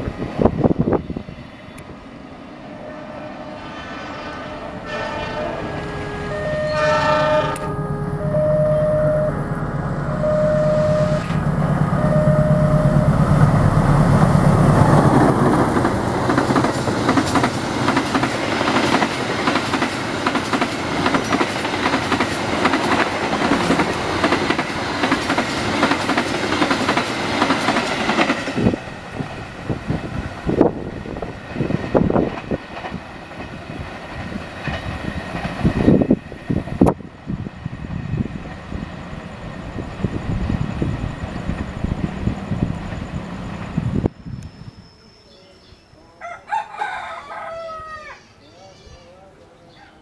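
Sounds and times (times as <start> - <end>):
locomotive engine drone: 0.0 - 46.2
distant train: 0.0 - 50.0
train horn toots: 2.8 - 13.8
train coaches clattering over rails: 14.8 - 37.0.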